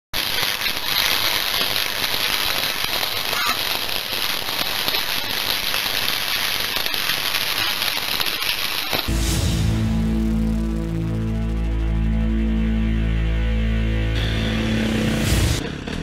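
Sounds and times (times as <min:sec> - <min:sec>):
sharp cracks: 0:00.2 - 0:09.1
crackling hissing noise: 0:00.2 - 0:15.6.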